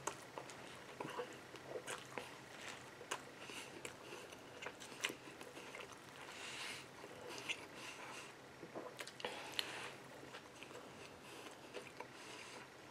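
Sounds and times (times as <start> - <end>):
person chewing with mouth clicks: 0.0 - 12.7.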